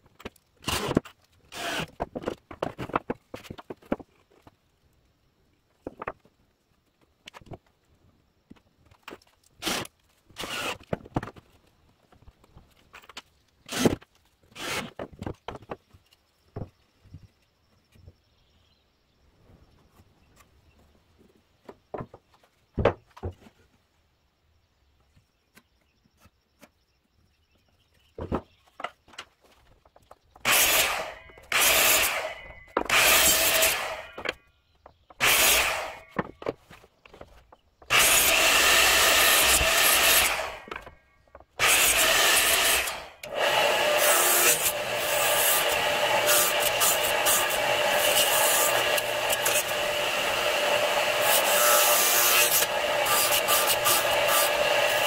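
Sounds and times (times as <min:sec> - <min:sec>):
miter saw cutting wood: 0:00.6 - 0:01.9, 0:09.6 - 0:10.9, 0:30.4 - 0:34.3, 0:35.2 - 0:36.2, 0:37.9 - 0:40.9, 0:41.6 - 0:55.0
radial arm saw running: 0:41.6 - 0:55.0.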